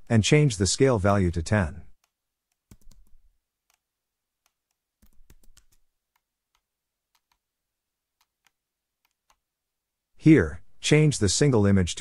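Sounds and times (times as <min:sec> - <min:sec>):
faint computer mouse clicks: 0:04.4 - 0:07.4, 0:08.2 - 0:09.4.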